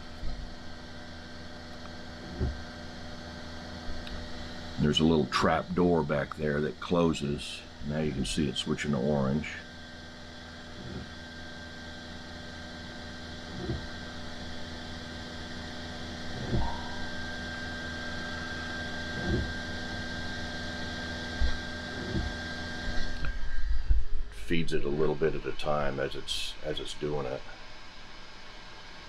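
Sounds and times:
printer fans humming and whining: 0.0 - 29.0
extruder soft pulse: 13.0 - 24.8.

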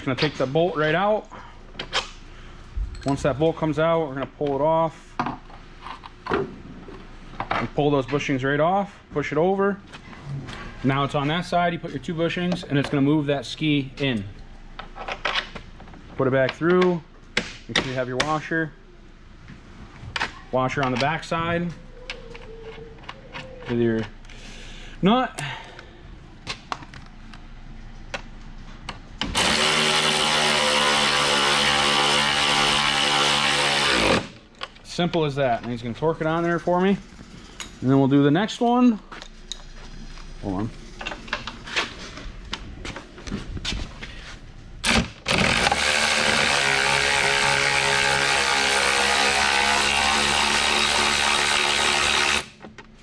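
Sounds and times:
cordless electric ratchet running: 29.2 - 34.4, 45.3 - 52.6
impact wrench hammering: 44.8 - 52.6.

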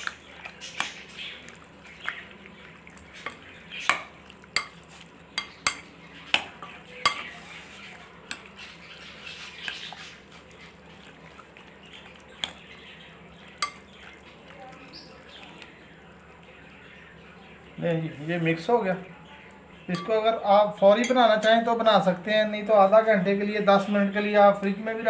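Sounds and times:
spoon stirring wet marinade: 0.0 - 22.2
spoon clinking against glass bowl: 3.2 - 4.8, 5.4 - 5.9, 6.6 - 7.4, 13.6 - 13.9, 19.9 - 20.2.

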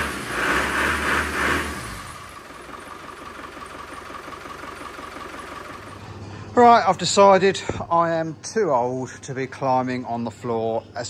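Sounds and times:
car engine revving and idling: 0.0 - 6.2.

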